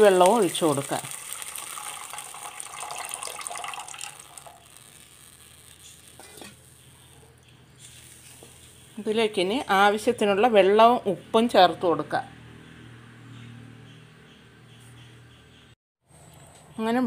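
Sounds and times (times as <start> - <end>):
liquid pouring into a pan: 0.0 - 6.6
faint simmer: 0.0 - 9.1.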